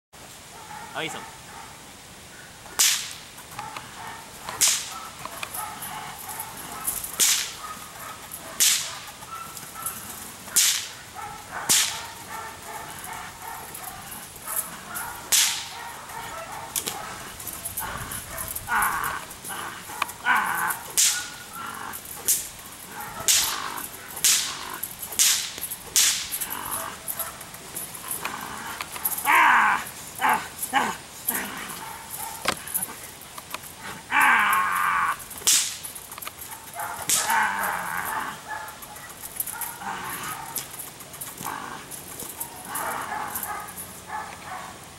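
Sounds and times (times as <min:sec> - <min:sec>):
whip cracks: 0:02.7 - 0:03.3, 0:04.5 - 0:05.0, 0:07.0 - 0:07.6, 0:08.6 - 0:09.1, 0:10.5 - 0:11.0, 0:11.6 - 0:12.1, 0:15.3 - 0:15.8, 0:20.8 - 0:21.5, 0:22.2 - 0:22.5, 0:23.2 - 0:26.5, 0:35.4 - 0:36.1, 0:37.0 - 0:37.5.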